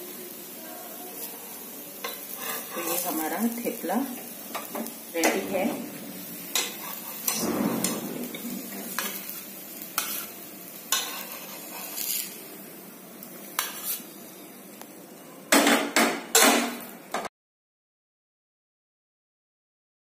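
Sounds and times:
light sizzle: 0.0s - 17.3s
spatula scraping on griddle: 2.0s - 12.5s, 13.4s - 14.2s.

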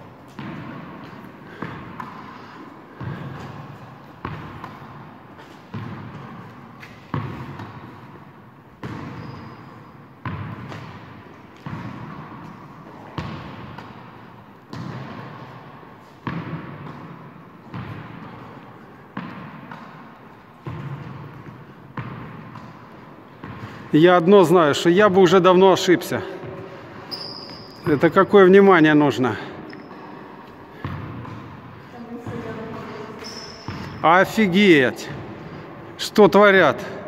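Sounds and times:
tennis ball hit with rackets: 0.3s - 2.4s, 10.2s - 23.7s.

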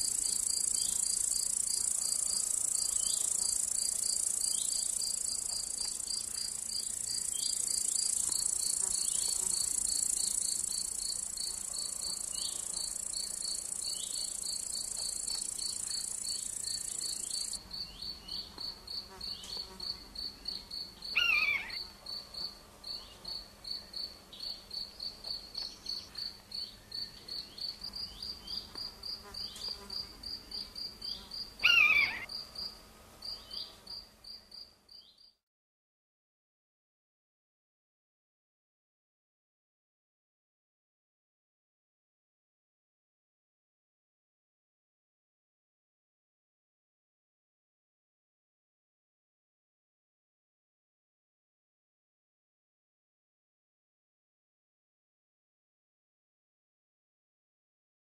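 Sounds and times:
high insect buzz: 0.0s - 35.1s
cricket chirping: 0.0s - 35.4s.

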